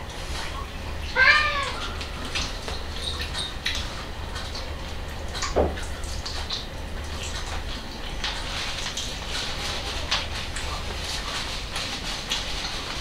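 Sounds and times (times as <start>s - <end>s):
steady low hum: 0.0s - 13.0s
wet chewing and lip smacks: 1.9s - 9.2s.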